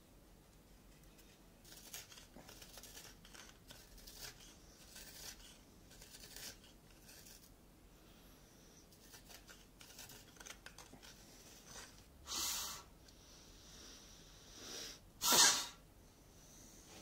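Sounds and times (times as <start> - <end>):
knife scraping wood: 1.2 - 7.5, 8.9 - 12.1.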